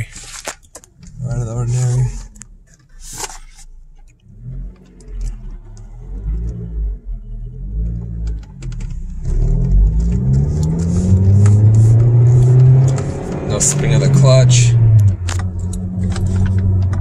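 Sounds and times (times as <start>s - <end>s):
car engine accelerating: 4.2s - 17.0s.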